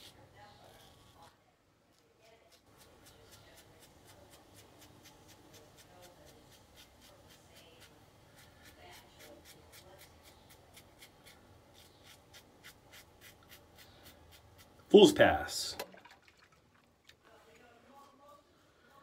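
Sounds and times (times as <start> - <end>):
razor scraping stubble: 0.0 - 1.3, 2.0 - 14.9.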